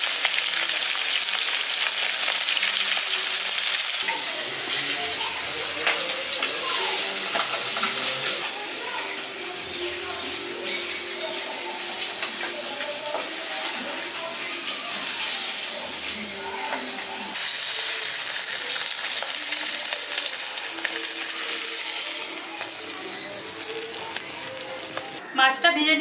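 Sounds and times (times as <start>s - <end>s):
fish sizzling in hot oil: 0.0s - 25.2s
spatula moving in a pan: 5.8s - 25.2s.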